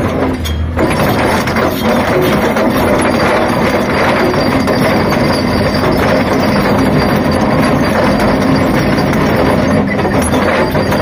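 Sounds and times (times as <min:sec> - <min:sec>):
excavator diesel engine under load: 0:00.0 - 0:11.0
trencher grinding through rocky ground: 0:00.0 - 0:11.0.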